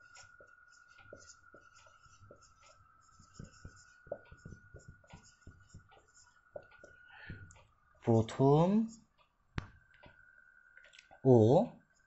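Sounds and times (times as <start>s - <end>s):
marker writing on whiteboard: 0.0s - 7.7s.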